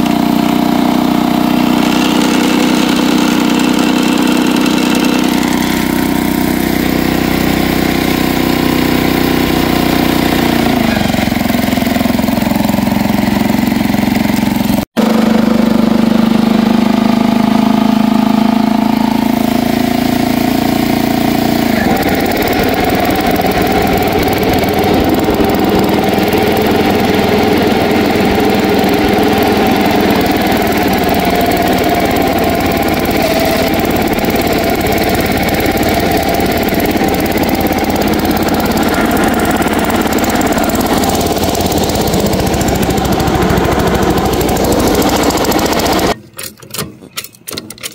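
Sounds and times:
mower cutting grass: 0.0s - 46.2s
garden tractor engine running: 0.0s - 47.9s.

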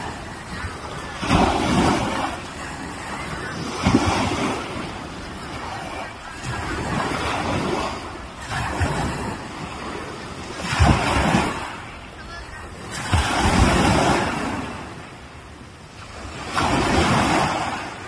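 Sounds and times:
small waves washing onto beach: 0.0s - 18.0s.

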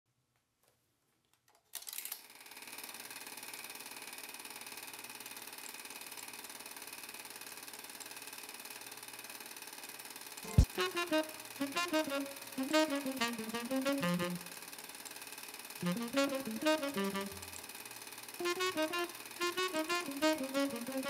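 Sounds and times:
film projector clicks: 1.7s - 21.0s
film projector motor whirring: 2.1s - 21.0s
music: 10.5s - 14.6s, 15.8s - 17.6s, 18.4s - 21.0s.

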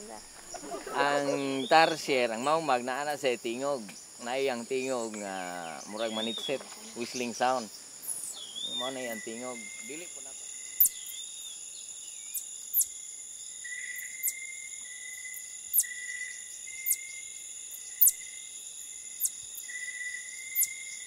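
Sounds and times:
insects droning: 0.0s - 21.0s
high-pitched whistled chirps: 8.2s - 10.1s.

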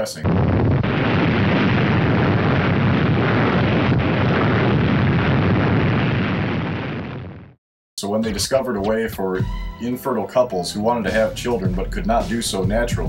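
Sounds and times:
explosion rumble: 0.0s - 7.6s.

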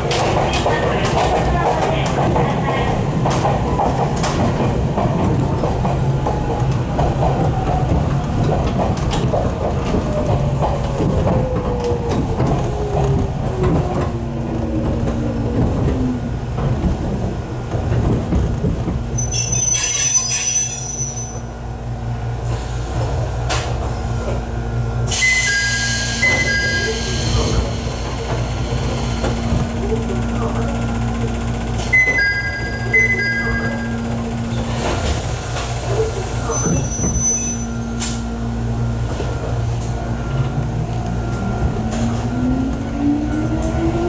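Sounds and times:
train running on rails: 0.0s - 44.0s
high beeping tones: 32.0s - 34.0s.

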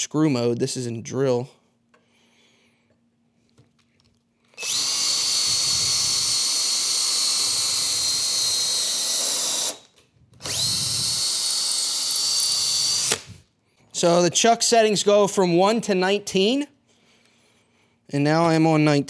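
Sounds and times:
cordless drill boring into wood: 4.6s - 13.4s.

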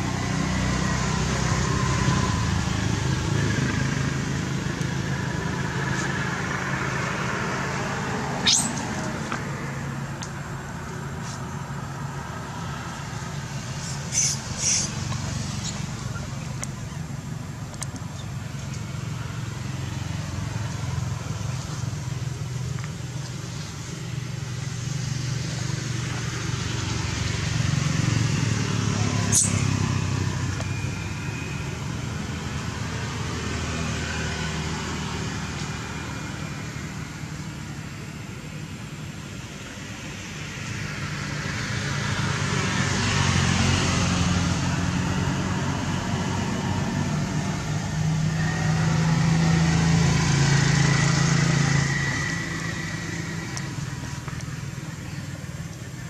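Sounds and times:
traffic engines running: 0.0s - 56.0s
sharp high click: 8.4s - 8.9s.

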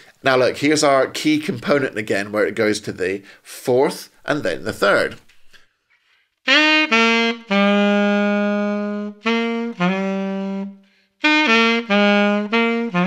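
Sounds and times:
solo saxophone blues lick: 6.4s - 13.0s.

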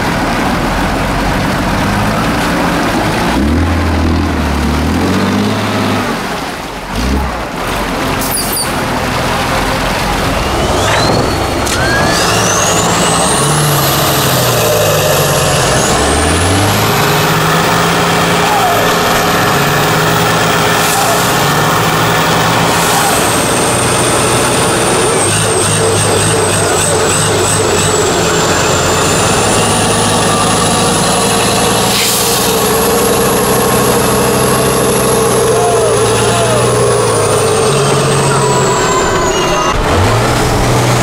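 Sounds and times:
diesel truck engine revving: 0.0s - 41.0s
high whistle: 10.4s - 13.7s, 38.0s - 39.8s.

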